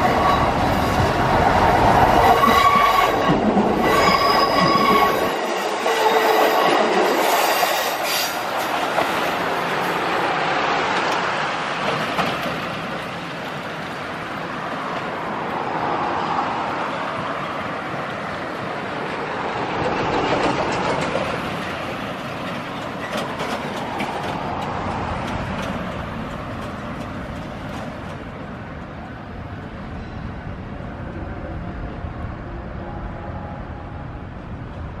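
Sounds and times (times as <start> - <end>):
train wheels clicking over rail joints: 10.9 - 13.4, 19.7 - 28.3.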